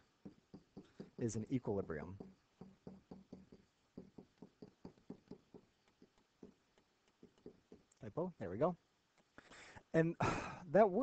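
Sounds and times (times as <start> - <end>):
stylus tapping on tablet screen: 0.0 - 8.0.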